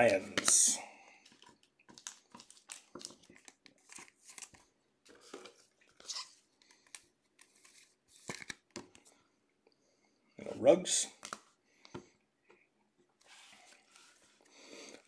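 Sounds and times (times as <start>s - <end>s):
trading cards rustling and clicking: 0.0s - 9.0s.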